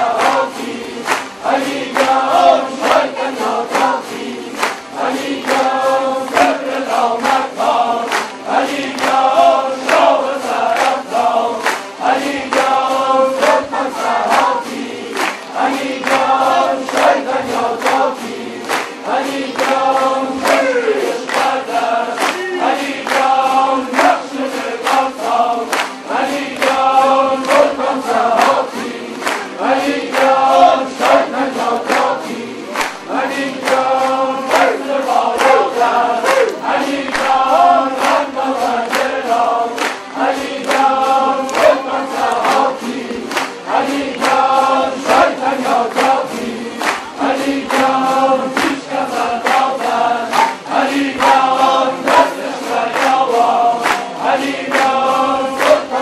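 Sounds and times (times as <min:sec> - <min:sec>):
lutes strummed in fast rhythm: 0:00.0 - 0:56.0
voices singing in unison: 0:00.0 - 0:56.0.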